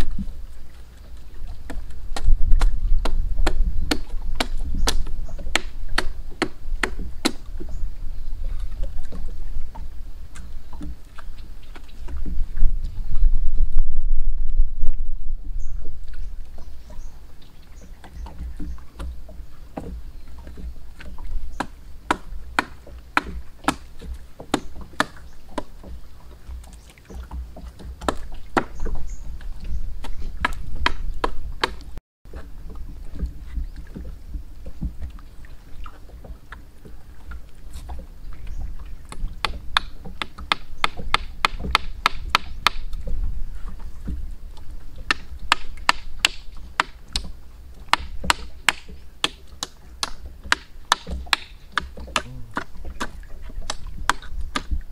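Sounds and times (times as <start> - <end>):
machete chopping wood: 1.7 - 7.5, 21.6 - 25.7, 28.0 - 28.8, 30.4 - 31.9, 39.4 - 42.9, 45.1 - 47.3, 47.9 - 54.8.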